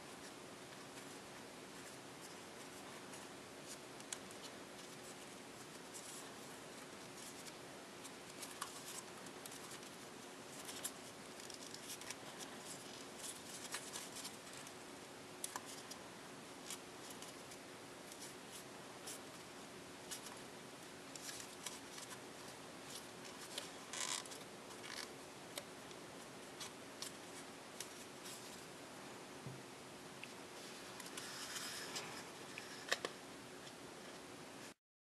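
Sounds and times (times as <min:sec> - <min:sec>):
paper crinkling: 0:21.1 - 0:25.6.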